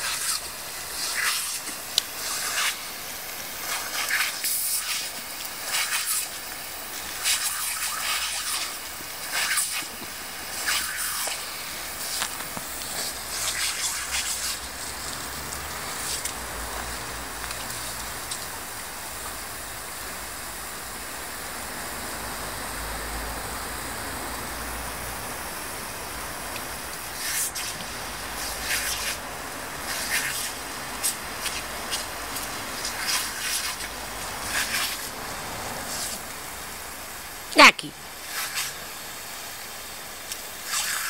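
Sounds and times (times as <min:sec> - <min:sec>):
water splashes: 0:00.0 - 0:19.2, 0:25.3 - 0:37.4
hose water hissing on concrete: 0:00.0 - 0:41.0.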